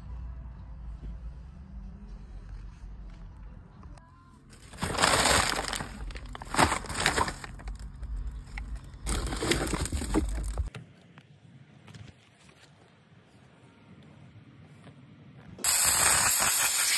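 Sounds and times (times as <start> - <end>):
paper bags crinkling: 4.5 - 10.7.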